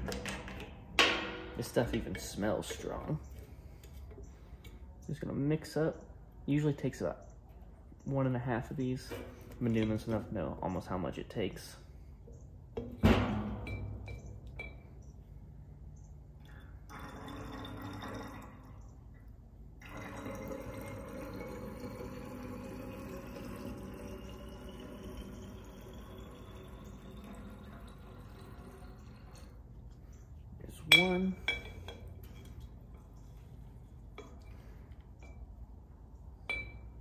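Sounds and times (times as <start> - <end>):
liquid trickling into vial: 16.8 - 18.9, 19.8 - 29.7.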